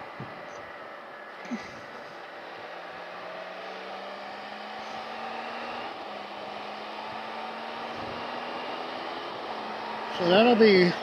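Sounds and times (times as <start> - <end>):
motorcycle engine drone: 0.0 - 11.0
wind rushing over motorcycle rider: 7.1 - 10.1.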